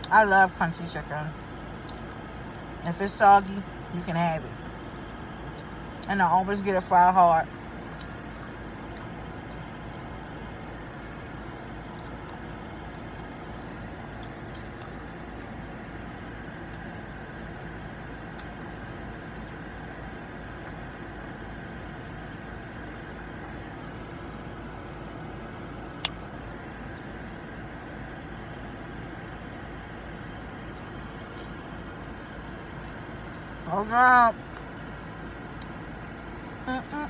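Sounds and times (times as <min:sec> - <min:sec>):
car cabin hum: 0:00.0 - 0:37.0
crunchy chewing: 0:07.8 - 0:15.6, 0:30.7 - 0:33.6.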